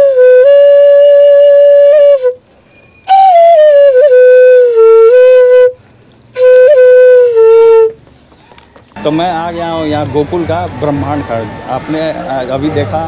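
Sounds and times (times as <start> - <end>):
bamboo flute playing slow melody: 0.0 - 8.0.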